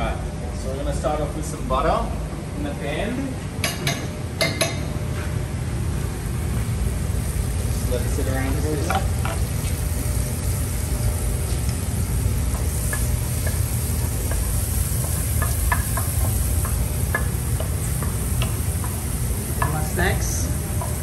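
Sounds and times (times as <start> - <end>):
low rumble of gas flame: 0.0 - 21.0
butter sizzling: 7.1 - 21.0
spatula ticks and clicks in pan: 12.8 - 19.0.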